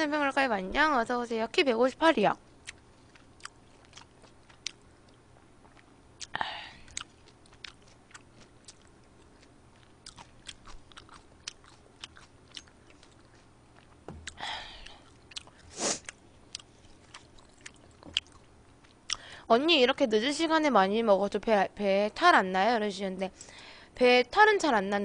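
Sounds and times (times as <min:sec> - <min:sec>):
chewing food: 0:02.6 - 0:19.3.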